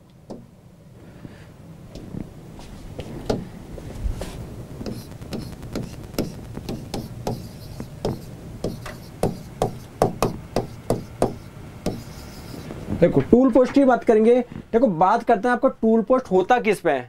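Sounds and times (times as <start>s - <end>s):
pen tip tapping on screen: 4.8s - 12.0s.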